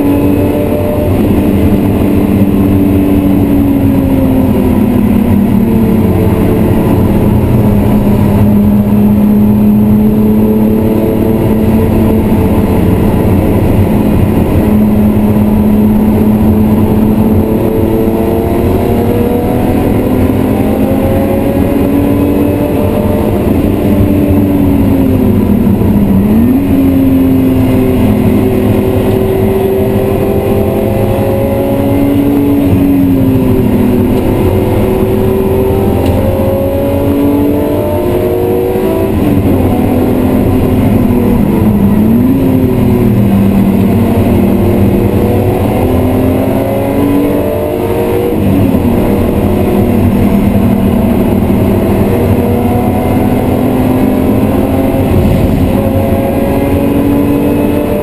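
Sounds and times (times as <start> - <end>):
car engine revving through gears: 0.0 - 58.0
road noise: 0.0 - 58.0.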